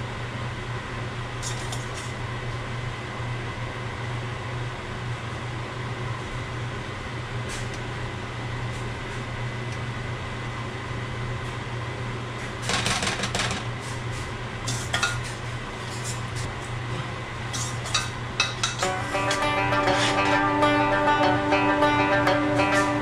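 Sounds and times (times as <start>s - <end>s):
low fan hum: 13.7s - 23.0s.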